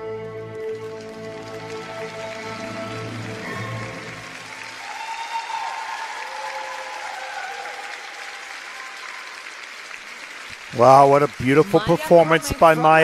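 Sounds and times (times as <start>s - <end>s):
violin and orchestra music: 0.0s - 4.6s
audience applauding: 0.0s - 13.0s.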